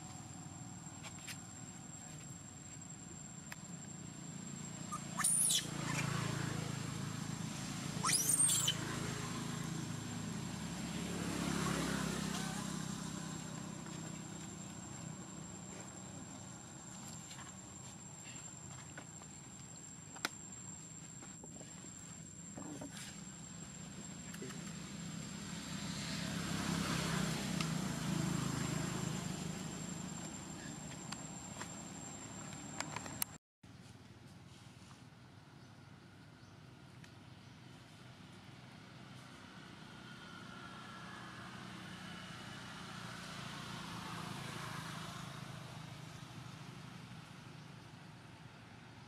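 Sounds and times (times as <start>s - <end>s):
vehicle engine passing: 4.6s - 17.0s, 22.9s - 33.2s, 38.9s - 47.1s.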